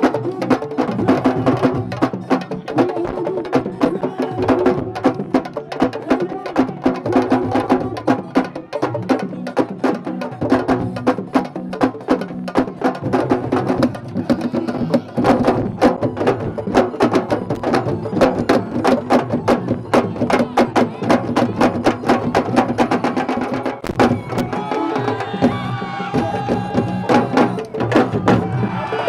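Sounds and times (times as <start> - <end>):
fast dense drumming: 0.0 - 29.0.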